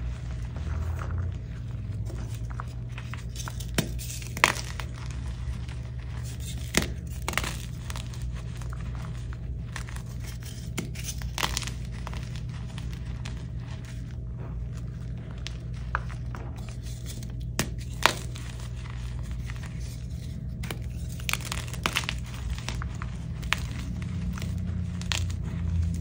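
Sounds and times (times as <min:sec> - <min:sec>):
gritty chalk crunching: 0:00.0 - 0:26.0
chalk pieces snapping: 0:02.3 - 0:05.3, 0:06.2 - 0:13.5, 0:15.2 - 0:26.0.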